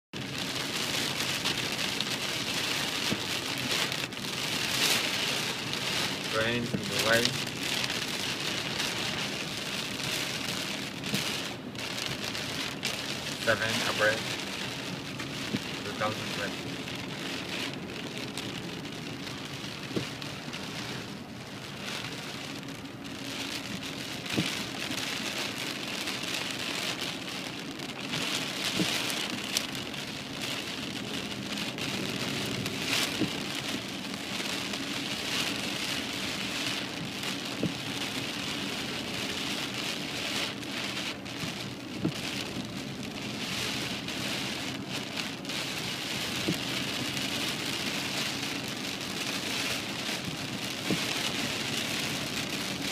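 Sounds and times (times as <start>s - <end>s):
heavy rain on car: 0.1s - 52.9s
raindrops ticking on glass: 1.4s - 43.4s.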